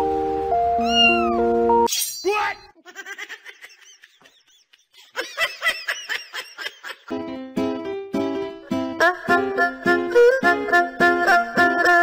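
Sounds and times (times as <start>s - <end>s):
background music with held notes: 0.0s - 1.9s, 7.1s - 12.0s
cat meowing: 0.8s - 1.5s.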